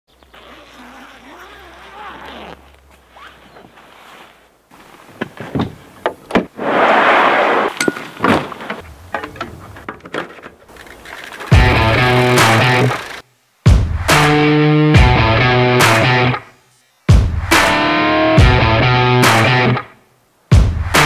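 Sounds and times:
rushing noise: 6.6s - 7.9s
bike gear knocking and clinking: 7.8s - 11.8s.

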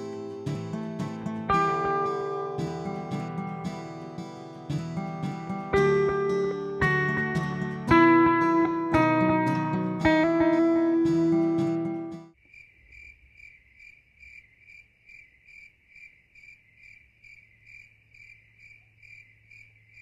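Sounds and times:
plucked guitar music: 0.0s - 12.3s
insect chirping: 12.4s - 20.0s.

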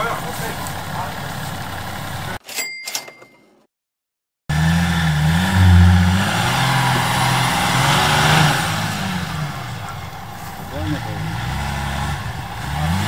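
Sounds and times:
suv engine revving: 0.0s - 2.4s, 4.5s - 13.0s.

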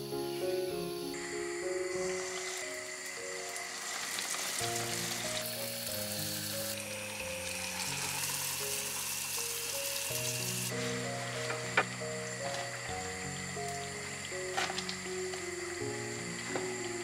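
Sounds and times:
dough sizzling in oil: 2.2s - 11.8s.

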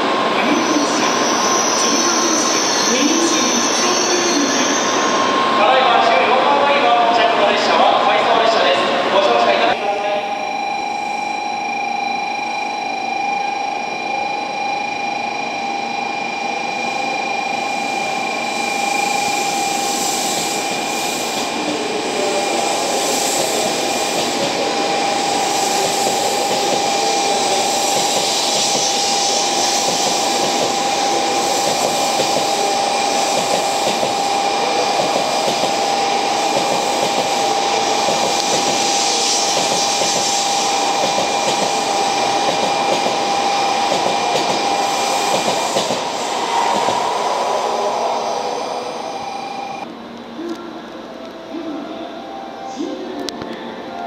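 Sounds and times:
train electric whine: 0.0s - 54.0s
train wheels rolling: 18.8s - 49.8s.

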